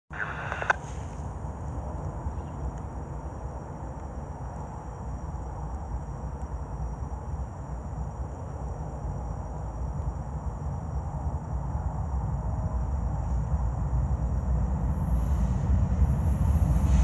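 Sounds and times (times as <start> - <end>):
freight train rumble: 7.3 - 17.0.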